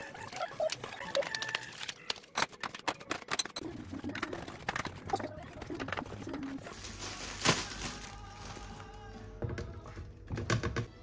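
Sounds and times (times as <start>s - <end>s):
hands handling food packaging: 6.6s - 9.4s.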